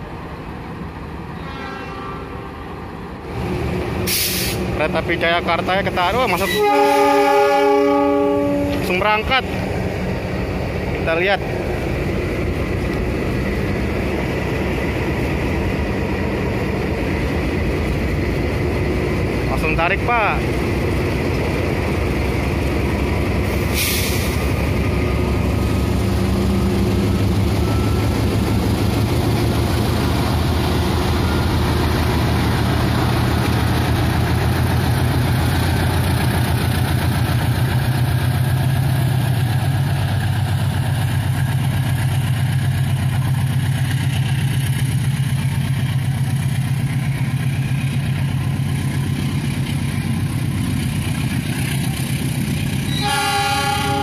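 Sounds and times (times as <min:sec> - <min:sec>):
diesel locomotive engine drone: 0:00.0 - 0:54.0
brief hiss: 0:04.1 - 0:04.7.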